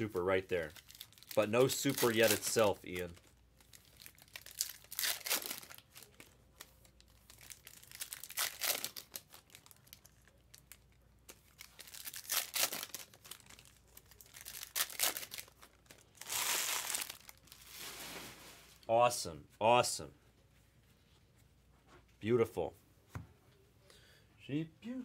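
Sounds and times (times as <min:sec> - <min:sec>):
foil wrappers crinkling and tearing: 0:00.6 - 0:18.3.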